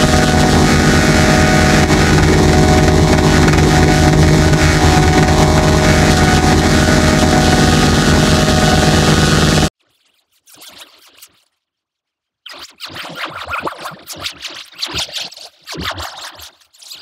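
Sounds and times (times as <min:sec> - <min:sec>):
distorted buzzing drone: 0:00.0 - 0:09.7
throbbing low pulse: 0:00.0 - 0:09.7.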